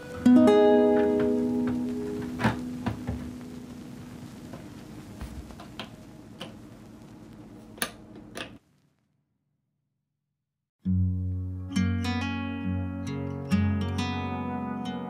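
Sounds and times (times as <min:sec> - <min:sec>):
background guitar music: 0:00.0 - 0:04.6, 0:10.8 - 0:15.0.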